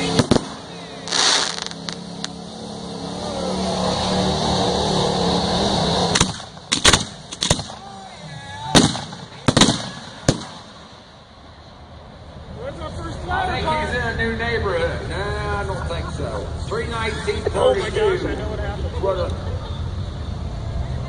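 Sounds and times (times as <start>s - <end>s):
firework bangs: 0.0s - 2.4s, 5.2s - 8.0s, 8.7s - 11.2s
engine drone: 0.0s - 8.4s.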